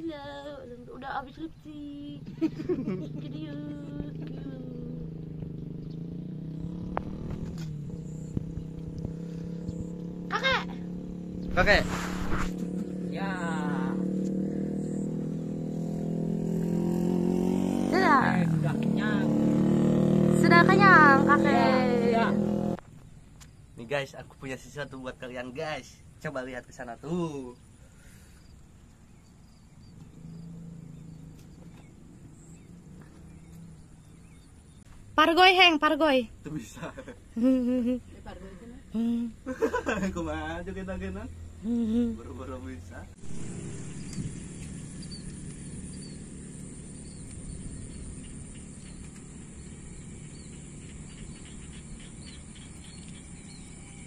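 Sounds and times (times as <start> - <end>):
faint bird chirps: 0.0 - 11.6, 12.8 - 16.2, 27.1 - 35.8, 43.2 - 54.0
high-pitched insect chorus: 12.6 - 37.2, 42.3 - 54.0
short bird chirps: 43.7 - 54.0.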